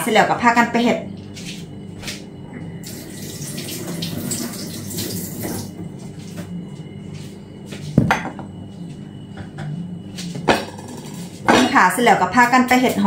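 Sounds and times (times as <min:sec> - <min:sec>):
kitchen tap running: 0:02.8 - 0:05.7.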